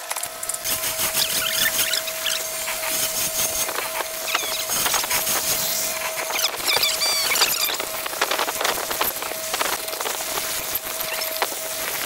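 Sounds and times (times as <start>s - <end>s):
machine motor humming: 0.0s - 12.0s
chisel squealing in wood: 1.0s - 3.0s, 3.7s - 7.8s.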